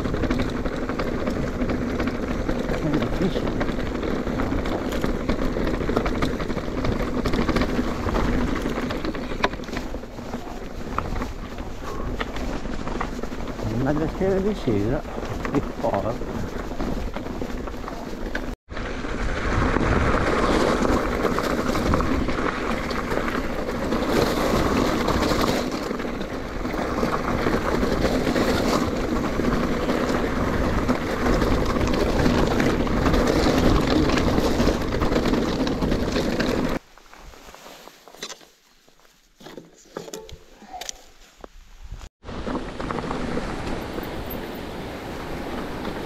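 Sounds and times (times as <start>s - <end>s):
wind rushing over microphone: 0.0s - 36.8s
mountain bike rolling rumble: 0.0s - 46.0s.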